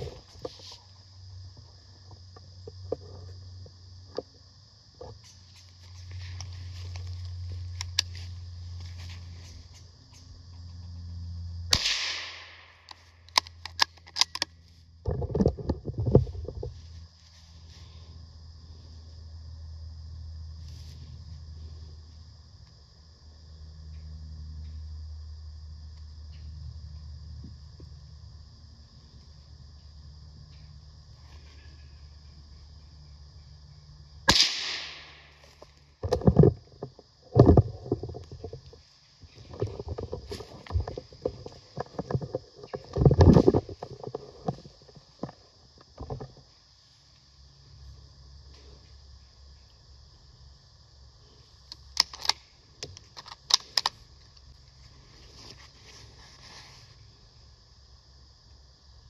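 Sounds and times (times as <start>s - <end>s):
gunshot echoing: 11.7s - 12.6s, 34.3s - 35.2s
sharp clicks: 11.7s - 14.5s, 51.7s - 54.0s.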